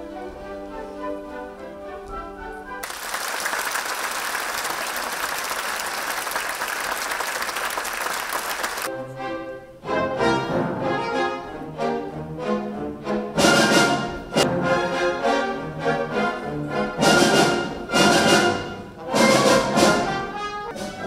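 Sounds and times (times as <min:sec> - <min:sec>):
orchestral ballet music: 0:00.0 - 0:03.1, 0:08.7 - 0:21.0
audience applause: 0:02.8 - 0:08.9.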